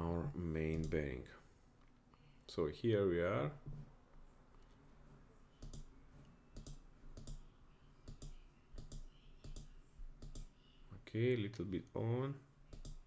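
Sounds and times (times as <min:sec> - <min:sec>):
faint low hum: 0:00.0 - 0:13.0
faint mouse clicks: 0:05.6 - 0:05.9, 0:06.5 - 0:10.6, 0:12.7 - 0:13.0.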